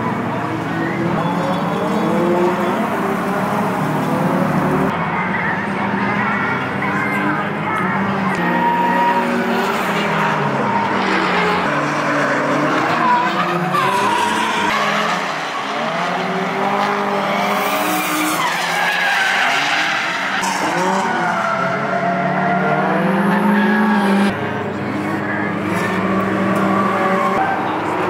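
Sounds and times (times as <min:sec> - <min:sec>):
car engines revving: 0:00.0 - 0:28.0
tyres skidding: 0:05.9 - 0:28.0.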